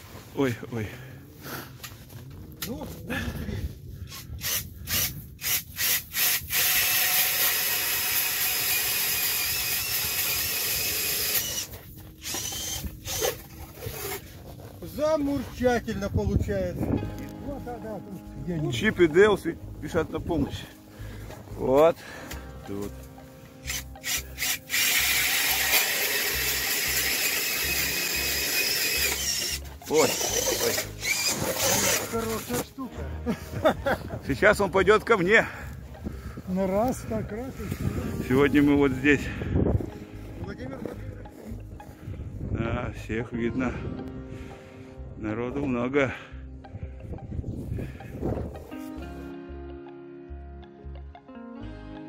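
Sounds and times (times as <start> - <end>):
auger blades grinding ice: 4.8 - 14.9, 23.7 - 32.7
cordless drill motor whine: 4.9 - 14.2, 23.6 - 32.1.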